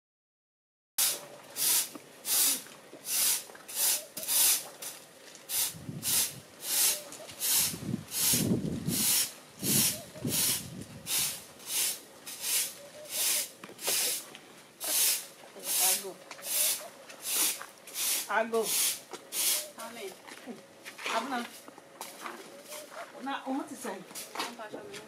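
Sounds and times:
broom sweeping ground: 0:01.0 - 0:20.1.

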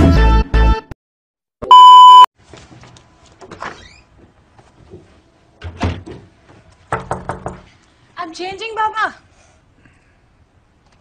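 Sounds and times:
high-pitched test-tone beep: 0:01.6 - 0:02.3.

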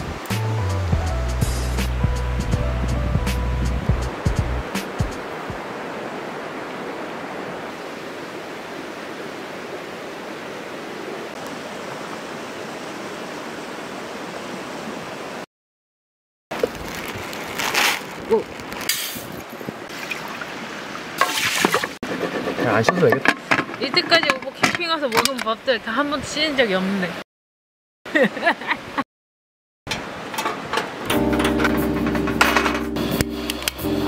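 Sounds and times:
stream rushing: 0:00.0 - 0:15.5, 0:16.5 - 0:27.2, 0:28.1 - 0:29.0, 0:29.9 - 0:34.0
pot knocks and rustles: 0:22.6 - 0:25.4.

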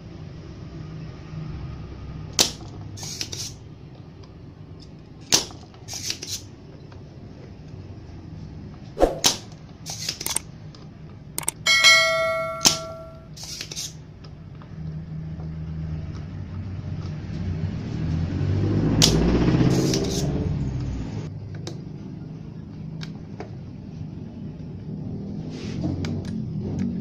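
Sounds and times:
sharp click: 0:10.0 - 0:10.4, 0:11.4 - 0:13.2
ringing chime: 0:11.4 - 0:13.3.

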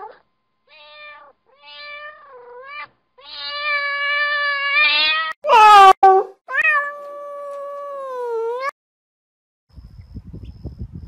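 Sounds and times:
cat meowing: 0:00.0 - 0:08.7.

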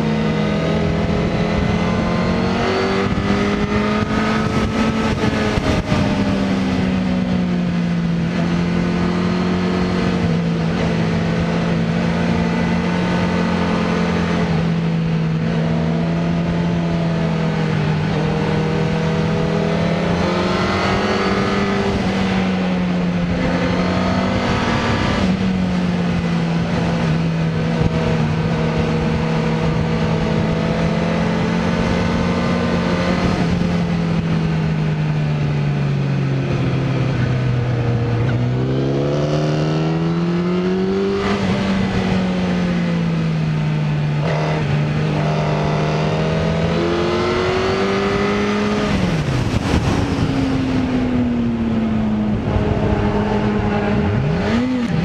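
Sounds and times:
motorcycle engine revving: 0:00.0 - 0:55.0
wind and road noise: 0:00.0 - 0:55.0.

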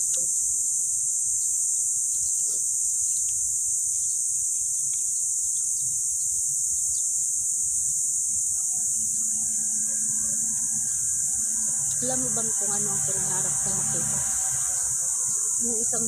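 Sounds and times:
insect chorus drone: 0:00.0 - 0:16.0.

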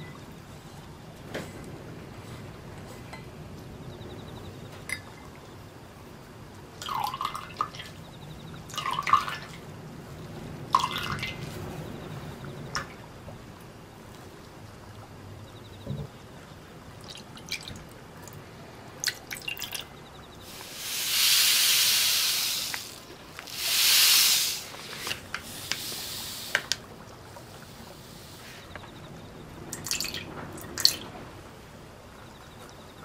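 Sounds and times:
loud rushes of hiss: 0:20.4 - 0:26.8, 0:27.6 - 0:28.7.

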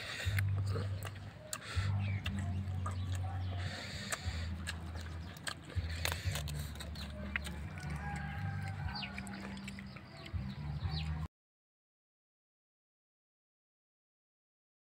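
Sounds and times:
bird chirps: 0:08.8 - 0:11.3.

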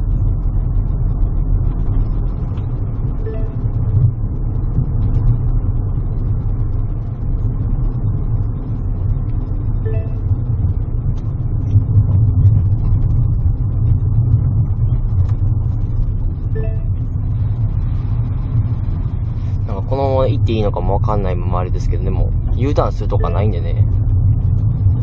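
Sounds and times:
car engine and road noise: 0:00.0 - 0:25.0
two-note electronic tone: 0:03.2 - 0:03.7, 0:09.9 - 0:10.3, 0:16.6 - 0:17.0.

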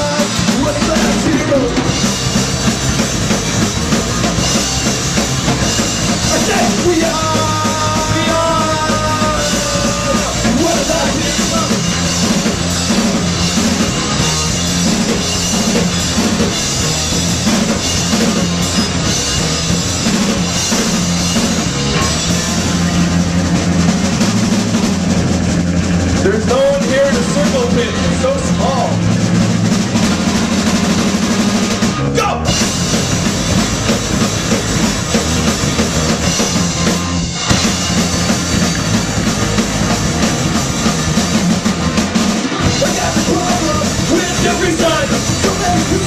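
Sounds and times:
drum kit: 0:00.0 - 0:46.0
electric bass: 0:00.0 - 0:46.0
electric guitar: 0:00.0 - 0:46.0.

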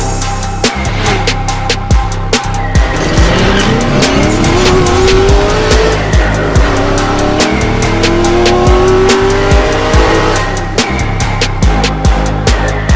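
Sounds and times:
background music with steady beat: 0:00.0 - 0:12.9
car engine accelerating hard: 0:02.8 - 0:10.8.

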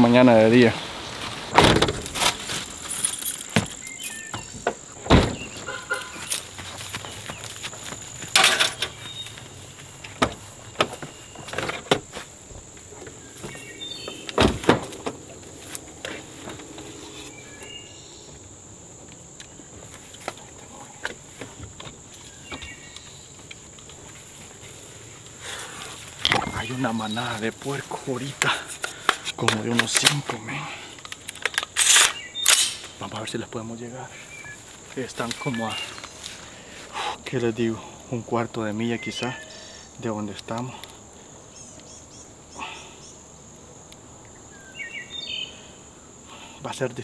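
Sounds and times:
high insect drone: 0:00.0 - 0:47.0
footsteps on grass: 0:00.4 - 0:18.4, 0:19.6 - 0:29.4, 0:34.1 - 0:37.1
knocks and thunks of rummaging: 0:01.2 - 0:15.4, 0:26.0 - 0:30.7.

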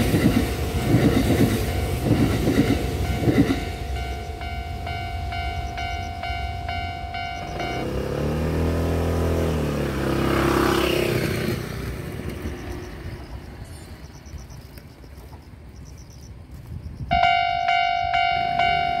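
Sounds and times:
level crossing bell ringing: 0:03.0 - 0:08.0, 0:17.1 - 0:19.0
vehicle passing close by: 0:07.4 - 0:13.5.

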